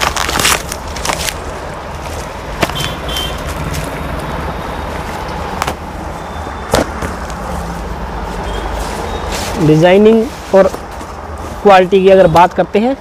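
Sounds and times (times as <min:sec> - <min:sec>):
sharp crackles: 0:00.0 - 0:03.9
plastic and fabric rustling: 0:00.0 - 0:04.0.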